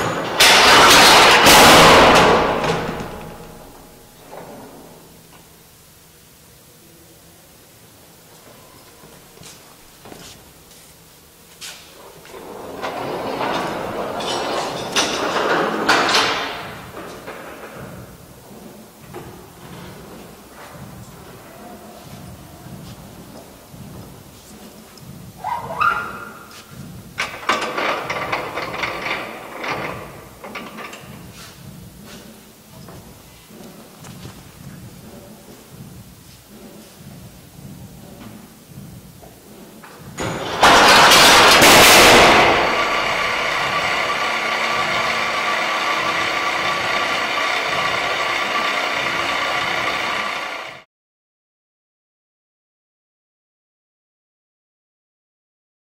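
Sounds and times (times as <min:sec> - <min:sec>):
cart striking barrier: 0:00.0 - 0:04.6, 0:40.2 - 0:50.8
cart rattling down metal ramp: 0:00.0 - 0:04.9, 0:12.2 - 0:18.2, 0:27.2 - 0:31.4, 0:40.2 - 0:50.8
mechanism whirring: 0:40.2 - 0:50.8.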